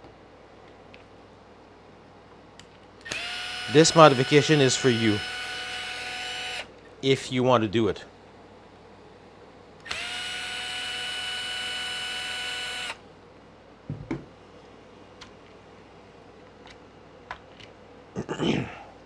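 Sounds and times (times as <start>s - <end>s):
cordless screwdriver spinning: 3.0s - 6.7s, 9.9s - 13.0s.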